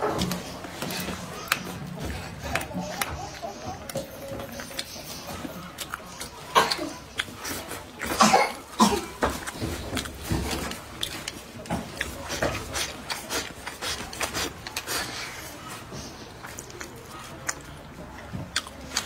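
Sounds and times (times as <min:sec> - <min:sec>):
person eating fish smacking: 0:00.0 - 0:15.5, 0:16.2 - 0:19.0.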